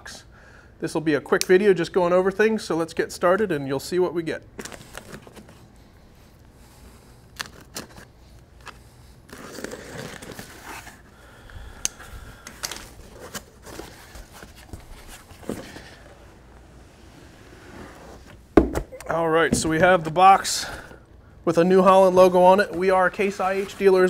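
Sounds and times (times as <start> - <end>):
packing tape being pulled off: 7.3 - 11.1
cardboard rustling: 12.6 - 18.5.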